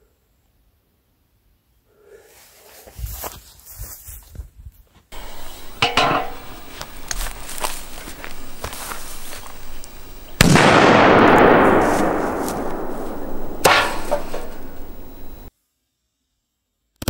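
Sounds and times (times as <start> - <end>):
firecracker bang: 5.2 - 15.5
sharp crack: 5.2 - 15.5.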